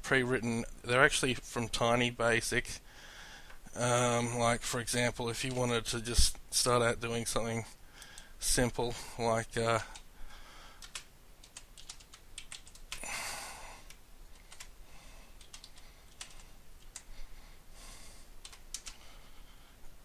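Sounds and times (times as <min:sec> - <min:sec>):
computer keyboard typing: 0:10.8 - 0:13.1, 0:13.8 - 0:14.7, 0:15.4 - 0:17.1, 0:18.4 - 0:19.0.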